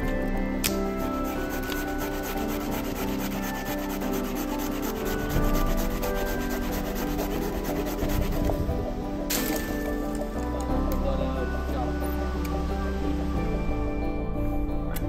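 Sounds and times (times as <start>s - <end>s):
knife scraping tree bark: 0.6s - 8.5s.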